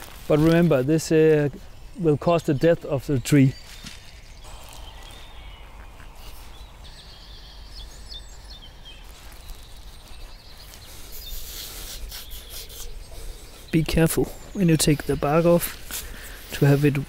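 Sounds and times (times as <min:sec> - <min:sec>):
small birds chirping: 0:00.0 - 0:17.0
knife scraping bark: 0:11.1 - 0:13.4.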